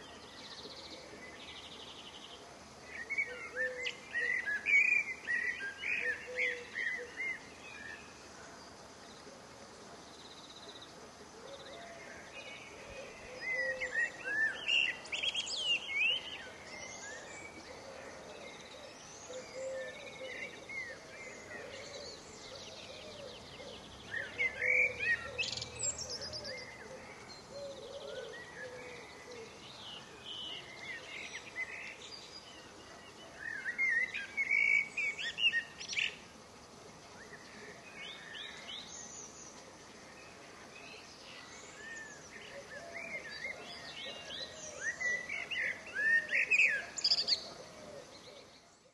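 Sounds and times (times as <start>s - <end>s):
songbird twittering: 0.0s - 8.2s, 11.6s - 36.3s, 37.2s - 48.9s
outdoor background hiss: 0.0s - 48.9s.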